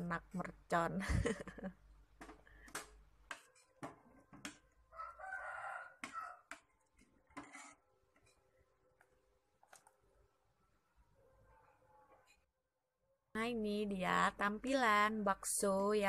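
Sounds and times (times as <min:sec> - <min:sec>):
metal ladle scraping pot: 0:07.0 - 0:08.4.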